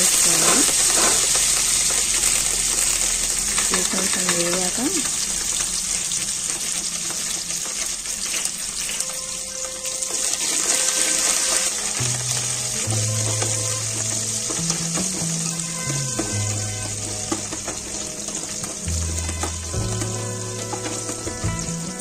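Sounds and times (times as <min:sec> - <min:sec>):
spices sizzling in hot oil: 0:00.0 - 0:22.0.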